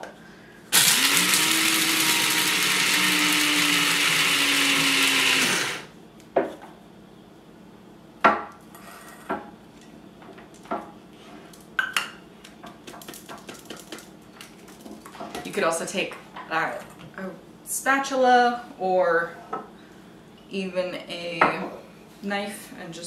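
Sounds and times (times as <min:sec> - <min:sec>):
electric coffee grinder running: 0:00.7 - 0:05.9.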